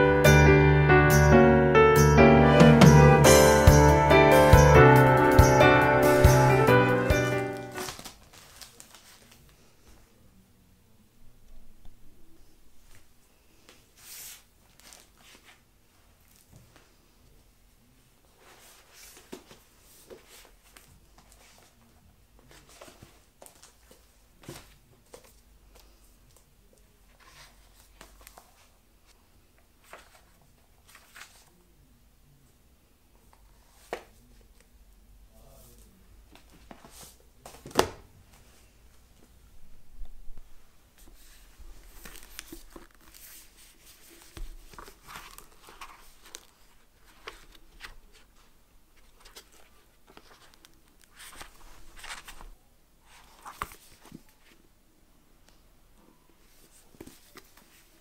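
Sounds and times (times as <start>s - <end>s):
pages rustling: 7.4s - 9.9s, 14.0s - 17.0s, 18.3s - 21.8s, 22.4s - 26.4s, 27.1s - 29.2s, 29.8s - 31.6s, 35.7s - 38.6s, 41.0s - 54.6s, 56.4s - 58.0s.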